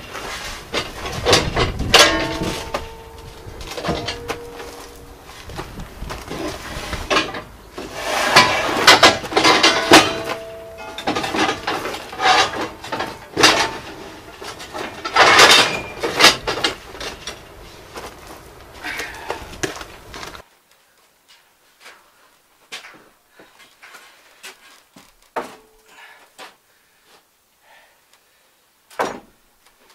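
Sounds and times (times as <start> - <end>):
steel sheets clanking and scraping: 0.0 - 17.6
metallic bangs: 0.7 - 7.5, 8.1 - 17.2
steel ringing: 1.9 - 5.3, 9.4 - 13.2.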